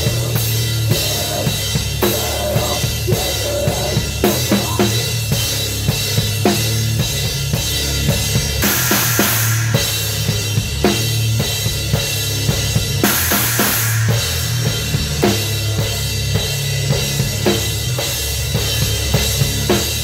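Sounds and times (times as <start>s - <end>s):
bass and guitar: 0.0s - 20.0s
cymbals crashing: 8.6s - 17.2s.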